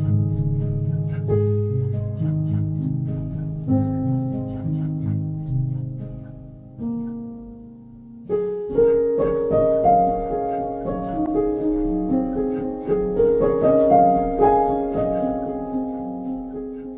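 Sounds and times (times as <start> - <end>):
instrumental piano music: 0.0 - 16.9.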